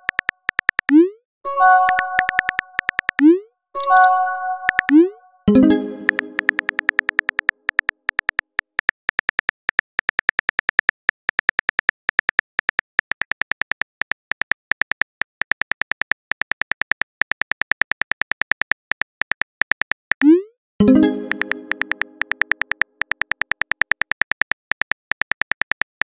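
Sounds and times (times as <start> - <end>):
phone keyboard key clicks: 0.0 - 1.0, 1.8 - 3.3, 6.1 - 20.2, 21.3 - 26.0.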